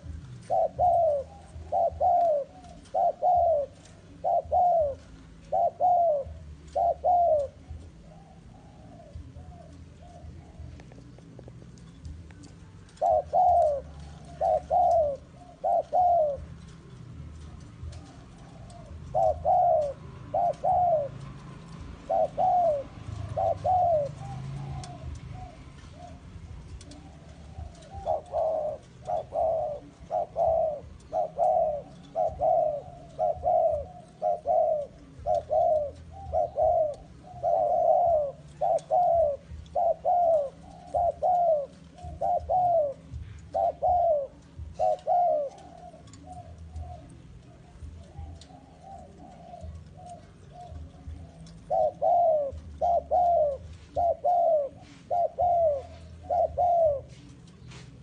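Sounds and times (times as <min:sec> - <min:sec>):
dove cooing: 0:00.0 - 0:58.0.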